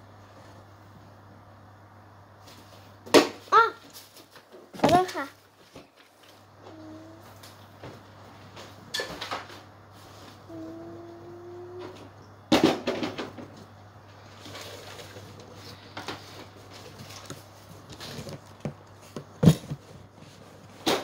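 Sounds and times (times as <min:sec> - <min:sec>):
low steady hum: 0:00.0 - 0:21.0
rustling clatter: 0:11.8 - 0:21.0.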